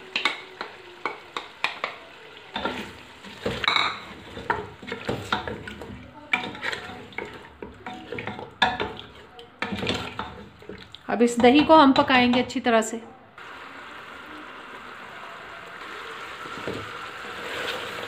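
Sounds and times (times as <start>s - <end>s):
curry sizzling: 0.0s - 12.6s, 13.4s - 18.0s
spoon knocking against pot: 11.3s - 12.6s.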